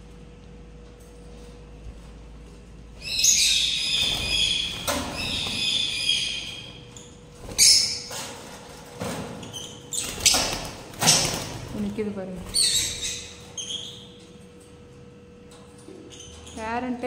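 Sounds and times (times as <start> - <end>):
lovebirds chirping: 3.0 - 8.1.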